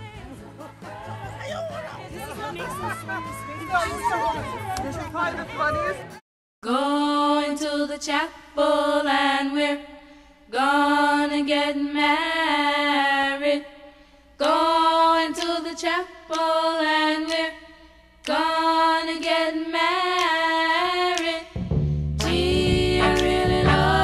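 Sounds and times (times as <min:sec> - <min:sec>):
music with deep bass: 0:21.6 - 0:24.0.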